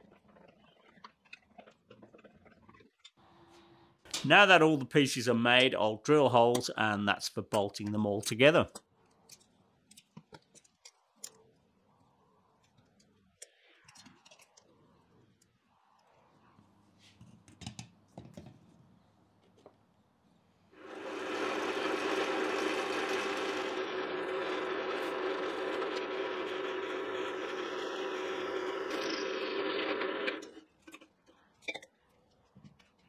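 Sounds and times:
drill press motor humming: 0:20.8 - 0:30.6.

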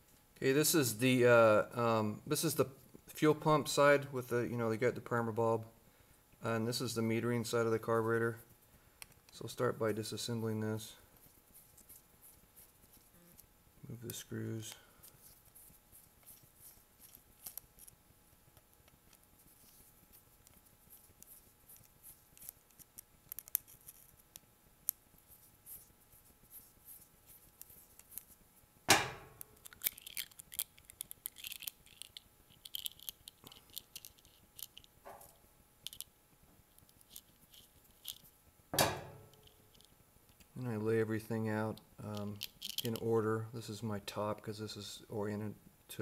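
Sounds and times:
metal clunk: 0:28.9 - 0:29.4, 0:35.1 - 0:35.3, 0:38.8 - 0:39.4.

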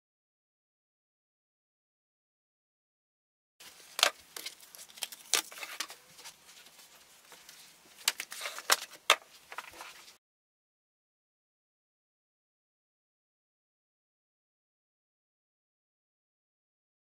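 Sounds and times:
paper and card rustling: 0:03.6 - 0:10.2.

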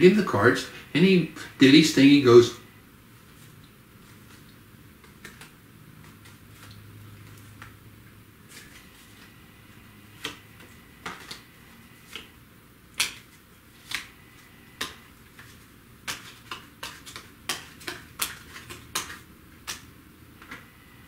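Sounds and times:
playing cards snapping: 0:05.0 - 0:07.8, 0:10.2 - 0:12.3, 0:12.9 - 0:14.2, 0:14.8 - 0:20.6.

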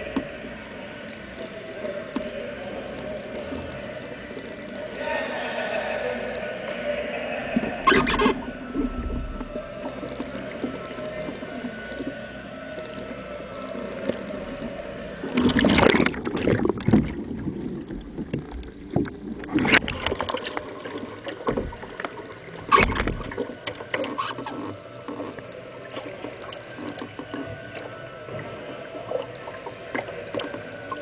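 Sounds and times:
kayak paddle strokes: 0:00.0 - 0:31.0
water splashing against a kayak: 0:06.2 - 0:31.0.

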